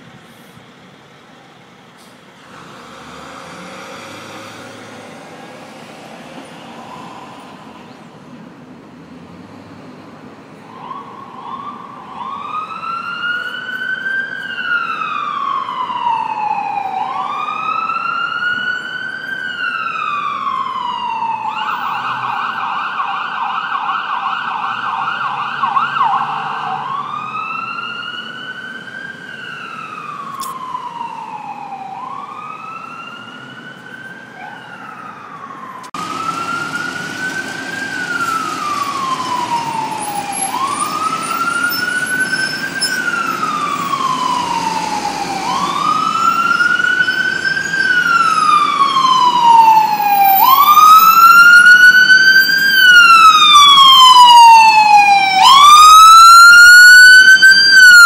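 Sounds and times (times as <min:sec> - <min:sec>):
siren wailing: 0:06.5 - 0:07.9, 0:10.7 - 0:58.0
siren fast yelp: 0:33.7 - 0:58.0.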